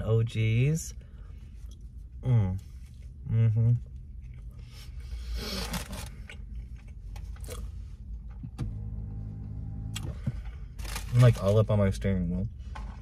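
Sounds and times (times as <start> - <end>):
low steady hum: 0.0 - 13.0
person chewing food: 3.8 - 7.8.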